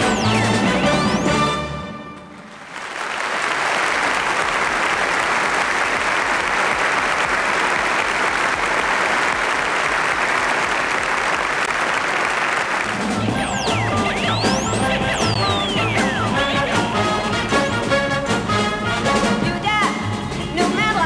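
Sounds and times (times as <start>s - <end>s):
audience applauding: 2.3s - 17.9s.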